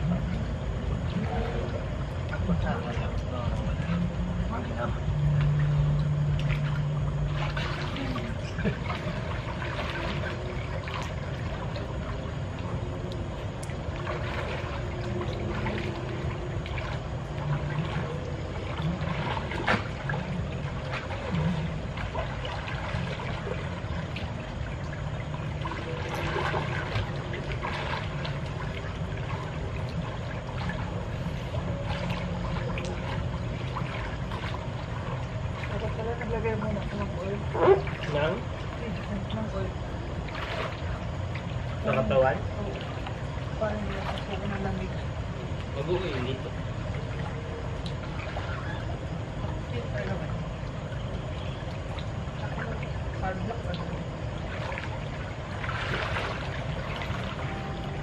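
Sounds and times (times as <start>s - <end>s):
pool water splashing and lapping: 0.0s - 58.0s.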